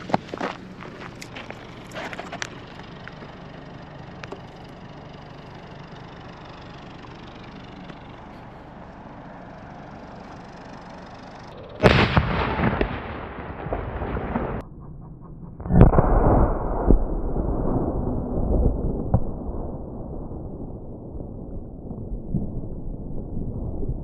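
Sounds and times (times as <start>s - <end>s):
firework blast: 11.8s - 14.6s, 15.6s - 24.0s.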